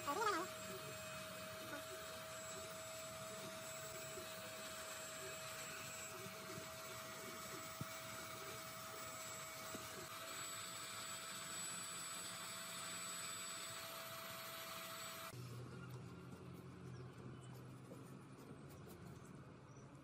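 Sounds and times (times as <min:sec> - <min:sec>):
heat gun fan whirring: 0:00.0 - 0:15.6.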